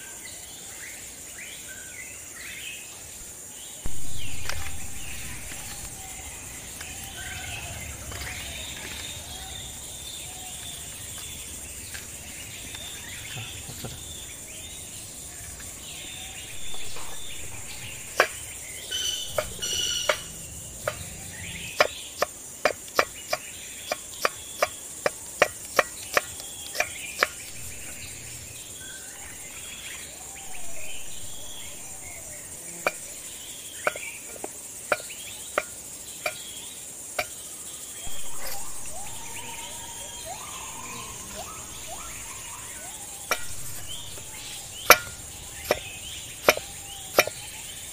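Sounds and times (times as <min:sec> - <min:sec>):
high insect drone: 0:00.0 - 0:47.9
bird chirps: 0:03.7 - 0:47.9
knife chopping on wooden board: 0:43.3 - 0:47.5.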